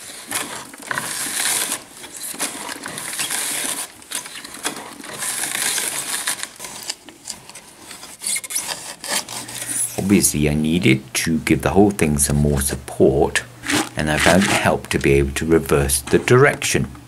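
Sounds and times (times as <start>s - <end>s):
charcoal crunching in grinder: 0.0s - 17.0s.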